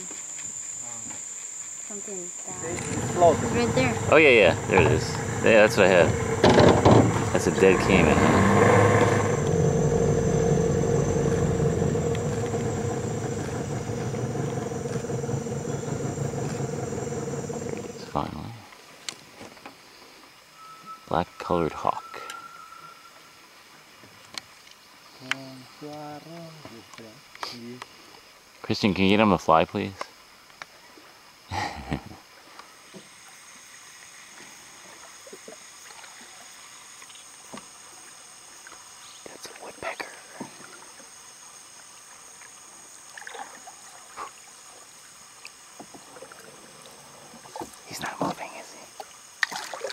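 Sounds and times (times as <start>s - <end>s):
high-pitched insect drone: 0.0s - 18.6s, 20.5s - 23.5s
small water sounds: 0.0s - 20.5s, 22.5s - 49.9s
outboard motor running: 1.9s - 18.5s.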